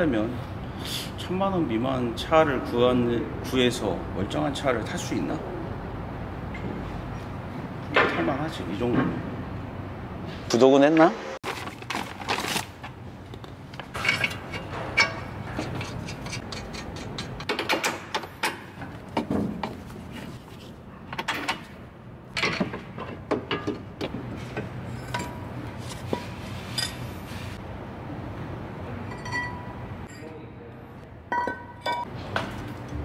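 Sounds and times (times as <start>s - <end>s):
metal parts and tools clinking: 13.8s - 18.8s, 24.5s - 27.2s, 29.1s - 30.4s, 31.3s - 32.1s.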